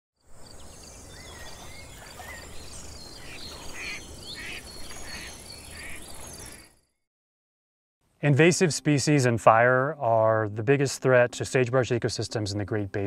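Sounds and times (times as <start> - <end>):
birds calling and chirping: 0.2 - 6.8.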